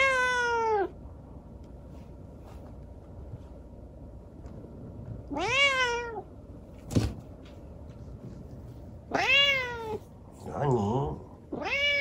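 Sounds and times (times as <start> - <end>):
kitten meowing loudly: 9.1 - 10.0.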